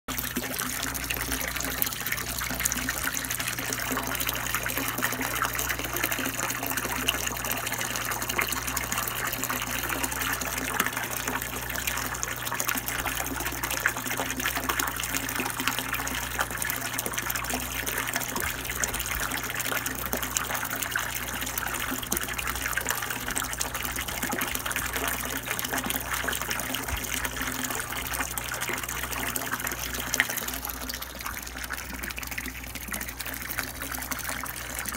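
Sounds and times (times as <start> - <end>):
water pouring into fish tank: 0.1 - 34.9.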